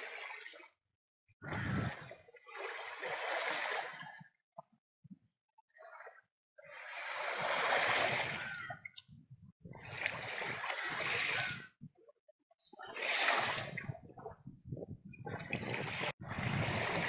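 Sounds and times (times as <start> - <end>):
small waves washing on sand: 1.4 - 4.1, 6.8 - 8.6, 9.9 - 11.6, 15.4 - 17.0.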